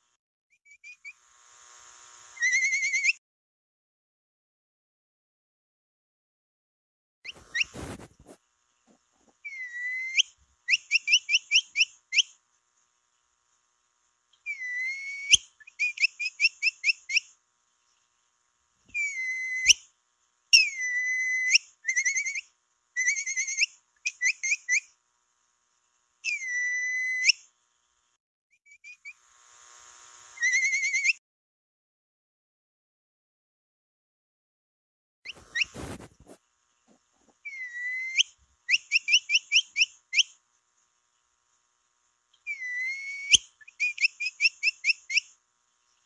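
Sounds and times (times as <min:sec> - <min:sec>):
long upward-bending whistles: 0:02.4 - 0:03.2, 0:09.4 - 0:12.3, 0:14.4 - 0:17.1, 0:18.9 - 0:19.8, 0:26.2 - 0:27.4, 0:30.4 - 0:31.2, 0:37.4 - 0:40.3, 0:42.4 - 0:45.3.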